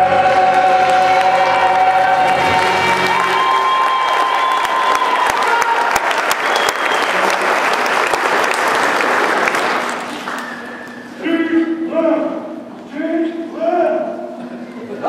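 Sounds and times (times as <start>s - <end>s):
audience applauding and cheering: 0.0s - 11.2s.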